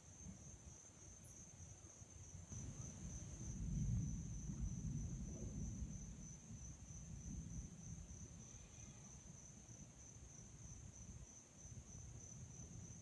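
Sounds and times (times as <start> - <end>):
insects chirring: 0.1 - 13.0
faint low rumble: 2.5 - 8.4.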